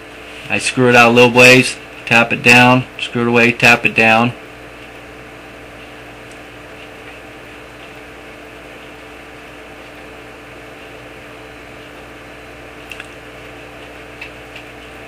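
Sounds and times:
steady hum and hiss: 0:00.0 - 0:15.0.

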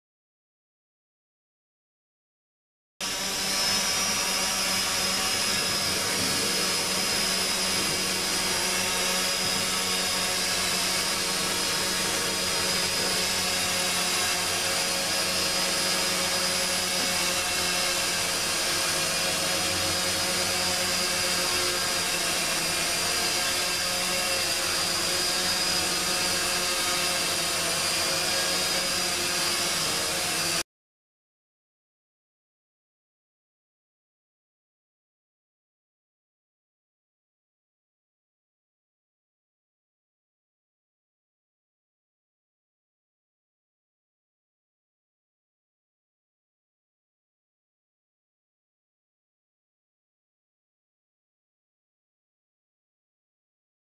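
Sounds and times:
drone propellers whining: 0:03.0 - 0:30.6.

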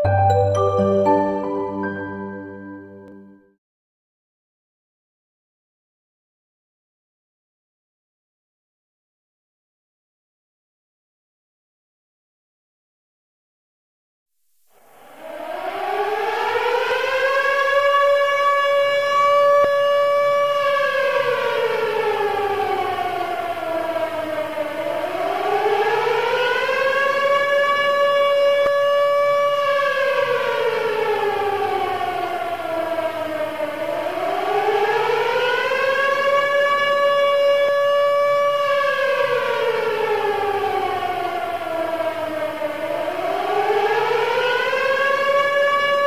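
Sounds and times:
rising and falling siren wail: 0:14.9 - 0:46.0.

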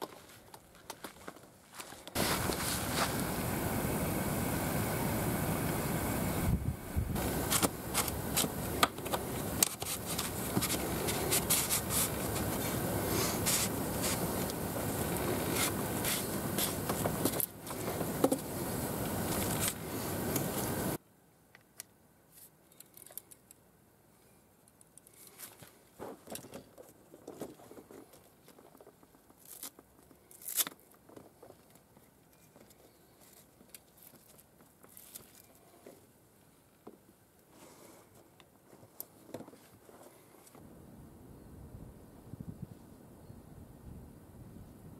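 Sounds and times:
fishing gear scraping and clicking: 0:07.2 - 0:18.4.

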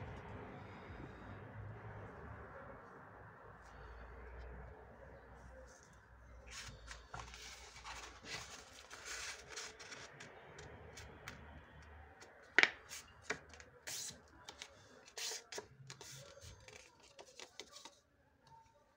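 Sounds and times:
paper rustling on wooden table: 0:06.5 - 0:11.4.

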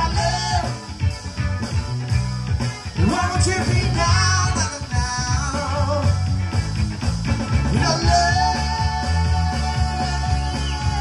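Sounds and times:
man singing: 0:00.0 - 0:01.0, 0:03.0 - 0:06.3, 0:07.7 - 0:11.0
live rock band playing: 0:00.0 - 0:11.0.

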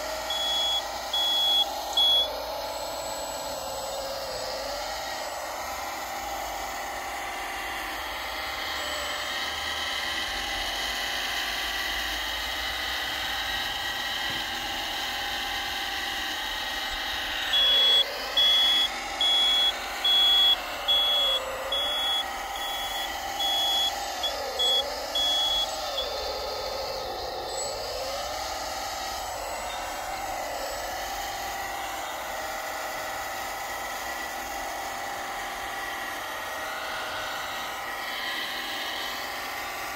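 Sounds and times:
toy motors and hydraulic pump whine: 0:00.0 - 0:39.9
short high reversing beeps: 0:00.2 - 0:02.4, 0:17.5 - 0:26.3.

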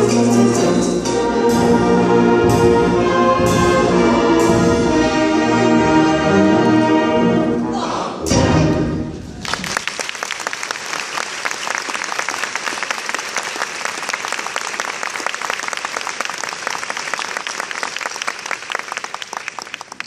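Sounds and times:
audience applause: 0:09.3 - 0:20.0.

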